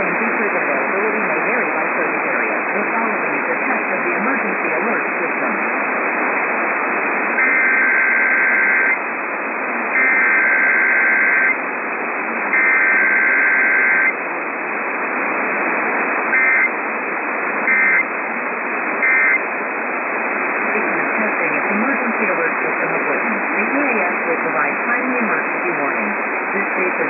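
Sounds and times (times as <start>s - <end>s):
radio hiss: 0.0s - 27.0s
warbling two-tone data bursts: 7.4s - 9.0s, 10.0s - 11.6s, 12.5s - 14.1s, 16.3s - 16.7s, 17.7s - 18.1s, 19.0s - 19.4s.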